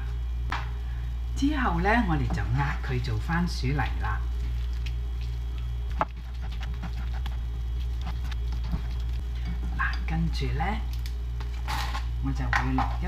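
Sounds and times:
steady low hum: 0:00.0 - 0:13.0
spatula mashing food on plate: 0:05.9 - 0:09.8.

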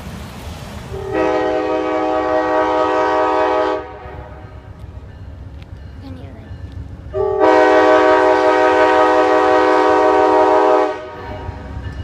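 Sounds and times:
train air horn blast: 0:01.0 - 0:04.4, 0:07.2 - 0:11.6.

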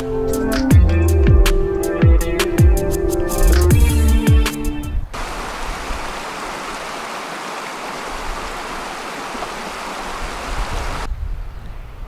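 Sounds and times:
river water rushing over rocks: 0:05.2 - 0:11.1.

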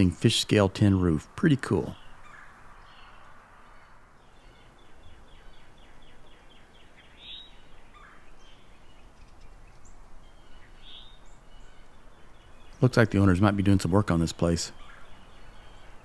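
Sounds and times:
outdoor background noise: 0:00.0 - 0:16.0
bird chirps: 0:01.5 - 0:16.0.

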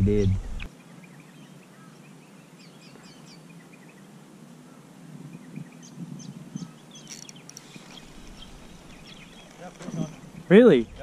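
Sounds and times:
low outdoor rumble: 0:00.0 - 0:00.7
small birds chirping: 0:00.0 - 0:11.0.

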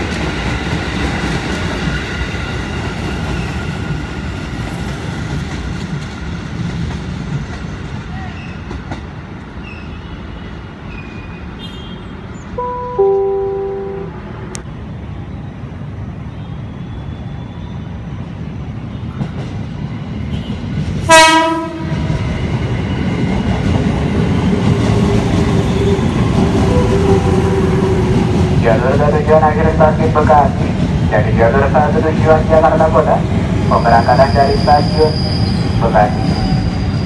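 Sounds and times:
train wheels and motors rumbling: 0:00.0 - 0:11.6, 0:17.9 - 0:37.0
short train horn blast: 0:12.6 - 0:14.4, 0:21.1 - 0:21.9, 0:26.7 - 0:28.0
two-note train horn: 0:12.6 - 0:14.4, 0:21.1 - 0:21.9, 0:26.7 - 0:28.0.

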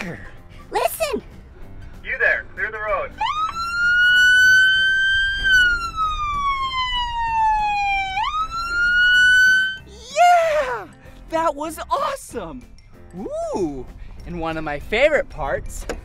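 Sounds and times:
police siren wailing: 0:03.2 - 0:09.9.

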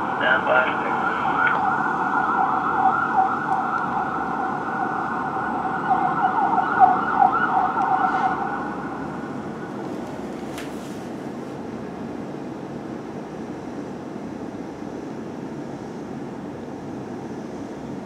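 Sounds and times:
fire engine siren yelping: 0:00.0 - 0:10.0
city traffic hum: 0:00.0 - 0:18.0.

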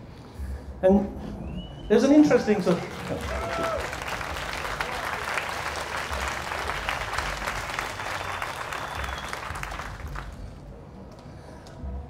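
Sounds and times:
audience applauding: 0:01.9 - 0:10.7.

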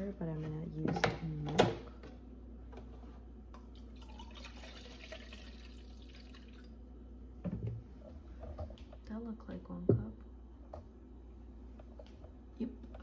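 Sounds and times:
milk pouring into a cup: 0:03.6 - 0:06.8.

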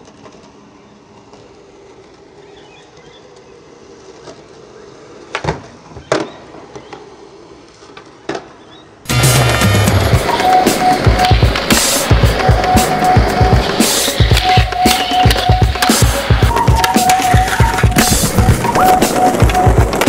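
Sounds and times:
skateboard wheels rolling: 0:00.0 - 0:20.0
skateboard clacking on ground: 0:09.4 - 0:20.0.

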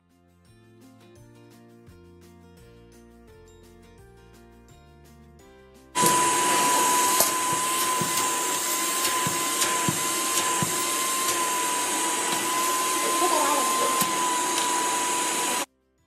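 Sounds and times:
soft background music: 0:00.1 - 0:11.8
vacuum cleaner running: 0:06.0 - 0:15.7.

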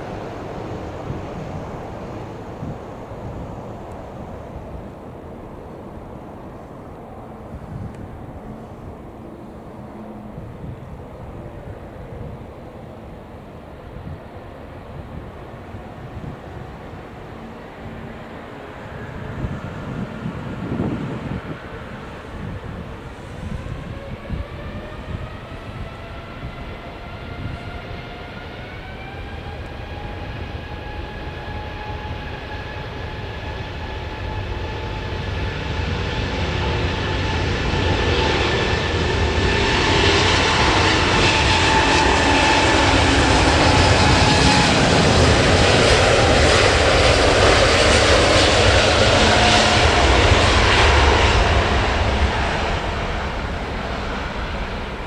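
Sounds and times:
jet engines spooling up: 0:16.0 - 0:55.0.

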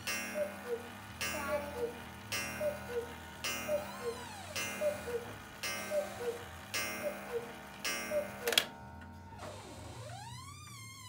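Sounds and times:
clock ticking: 0:00.0 - 0:09.1
clock mechanism click: 0:00.0 - 0:09.2
cuckoo clock calls: 0:00.0 - 0:11.0
faint tone rising and falling: 0:03.7 - 0:05.3, 0:09.3 - 0:11.0.

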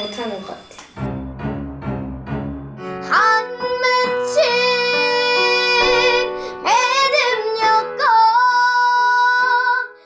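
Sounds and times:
instrumental backing: 0:00.0 - 0:08.5
girl singing with vibrato: 0:03.0 - 0:10.0.

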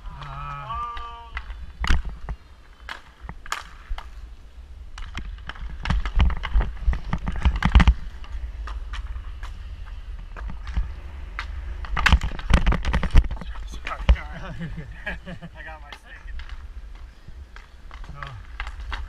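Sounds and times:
skate wheels rolling on wood: 0:00.0 - 0:19.0
hockey sticks clacking: 0:00.1 - 0:04.2, 0:15.6 - 0:19.0.

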